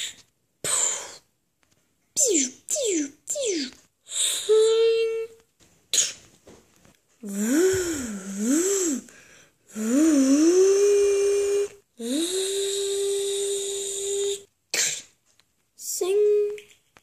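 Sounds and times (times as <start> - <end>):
person humming: 7.2 - 9.1, 9.7 - 14.5.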